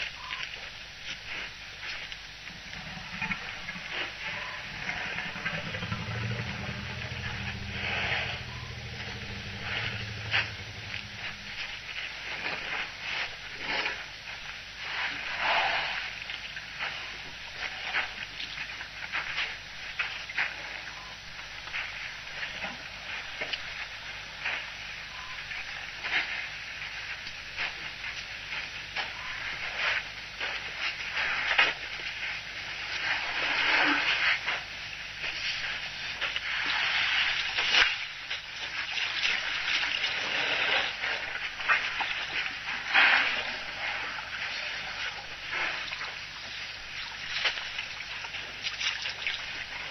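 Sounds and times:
elephants splashing water: 0:00.0 - 0:14.1, 0:27.1 - 0:49.9
steady hiss: 0:00.0 - 0:49.9.

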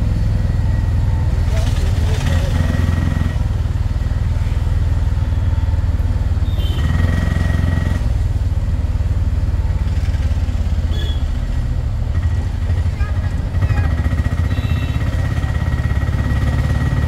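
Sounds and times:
motorcycle engine rumbling: 0:00.0 - 0:17.0.

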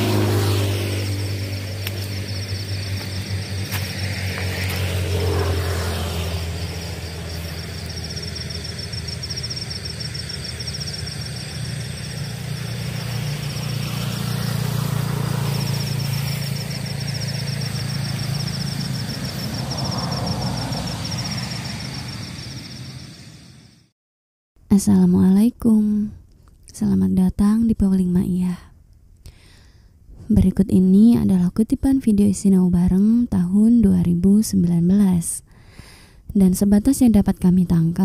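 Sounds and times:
passing vehicles hum: 0:00.0 - 0:23.9.

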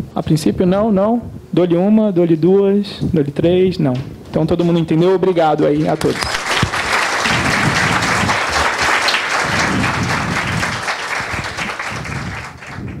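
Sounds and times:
audience applauding: 0:06.0 - 0:13.0.

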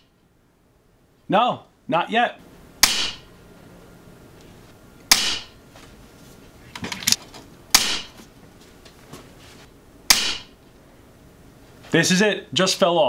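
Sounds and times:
air rifle shots: 0:02.8 - 0:03.3, 0:05.1 - 0:05.6, 0:07.7 - 0:08.2, 0:10.1 - 0:10.6.

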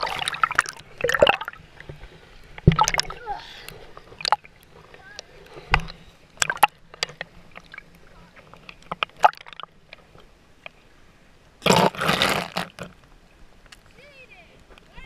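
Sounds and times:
small splashes and clicks: 0:00.0 - 0:10.8
water lapping and dripping: 0:00.0 - 0:15.0.

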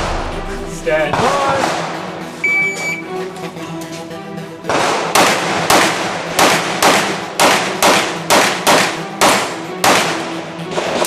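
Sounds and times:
handgun shots with echo: 0:04.7 - 0:10.4.

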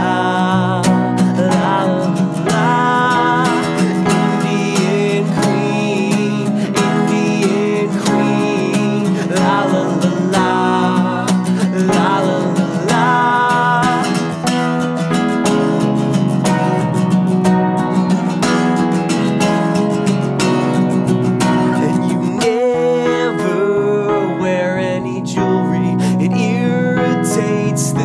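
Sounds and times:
man singing loudly: 0:00.0 - 0:14.5, 0:21.8 - 0:28.0
acoustic guitar strumming: 0:00.0 - 0:28.0
keyboard: 0:00.0 - 0:28.0.

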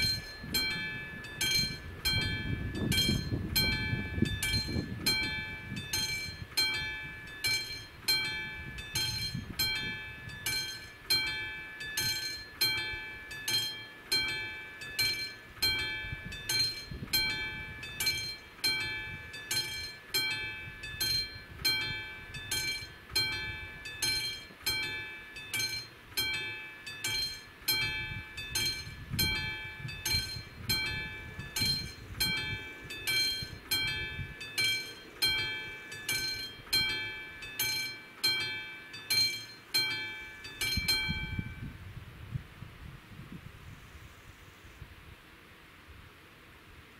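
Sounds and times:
level crossing warning bell: 0:00.0 - 0:41.7.

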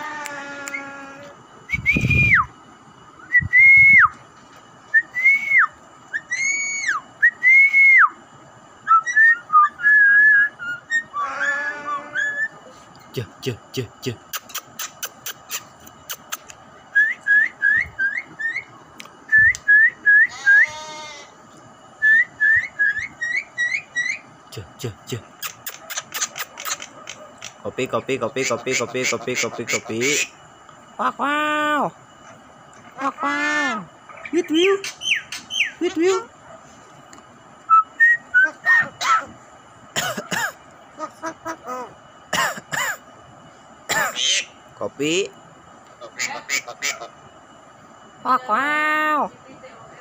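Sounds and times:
nasal bleat-like bird call: 0:00.0 - 0:01.4, 0:20.3 - 0:21.4
bird rising whistles: 0:01.7 - 0:02.6, 0:03.2 - 0:04.2, 0:04.9 - 0:08.2, 0:08.8 - 0:12.6, 0:16.9 - 0:18.7, 0:19.3 - 0:20.8, 0:22.0 - 0:24.2, 0:37.7 - 0:38.8
bird harsh rasping calls: 0:10.8 - 0:12.6, 0:23.0 - 0:24.3, 0:25.4 - 0:27.6, 0:28.4 - 0:30.4, 0:33.0 - 0:36.3, 0:43.9 - 0:44.6, 0:46.0 - 0:47.2
bird clicks: 0:14.3 - 0:16.6.

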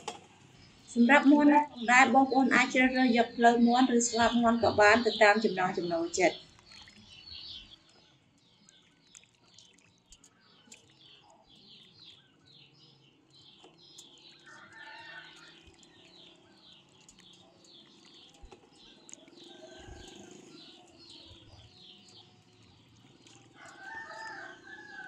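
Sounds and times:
water lapping and splashes: 0:05.9 - 0:25.0.

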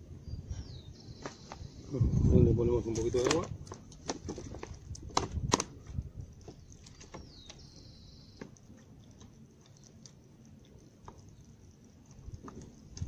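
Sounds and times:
water trickling onto soil: 0:02.6 - 0:13.0.

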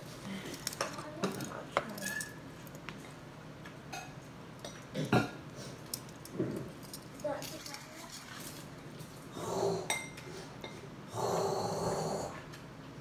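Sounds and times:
metal handcuffs clinking: 0:05.9 - 0:07.8
low vocal sound: 0:11.1 - 0:12.5.

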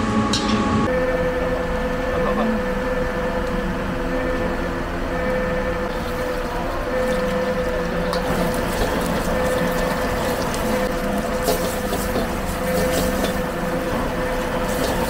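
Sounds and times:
gas burner roar: 0:00.0 - 0:15.0
low hum: 0:00.0 - 0:15.0
ladle scraping wok: 0:05.9 - 0:15.0
oil sizzling: 0:05.9 - 0:15.0.

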